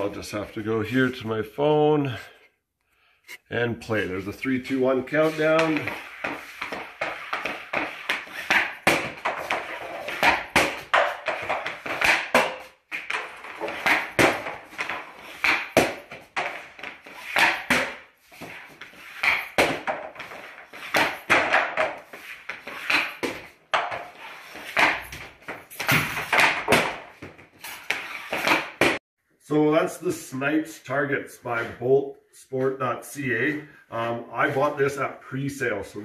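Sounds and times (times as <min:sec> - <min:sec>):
hockey stick cracking on puck: 0:05.5 - 0:29.0
puck striking target and post: 0:05.5 - 0:29.0.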